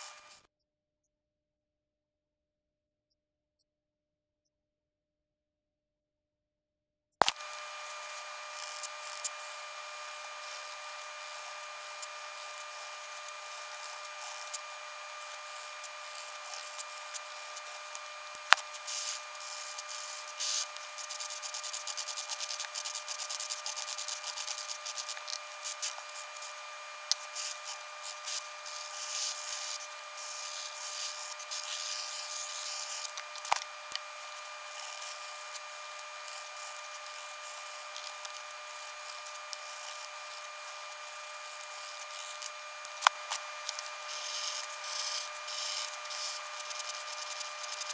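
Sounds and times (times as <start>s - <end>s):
sharp click: 7.2s - 7.7s
pencil and marker scratching paper: 7.9s - 47.9s.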